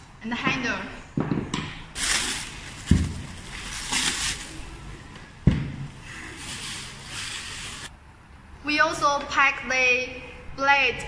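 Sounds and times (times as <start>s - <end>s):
bubble wrap crinkling: 2.0s - 4.9s, 6.4s - 7.9s.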